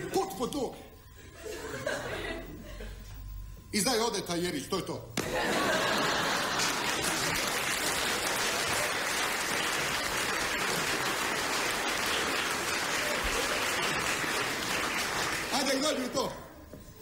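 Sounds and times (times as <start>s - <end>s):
audience laughter: 1.3s - 3.1s, 5.2s - 9.2s
audience applauding: 5.2s - 16.2s.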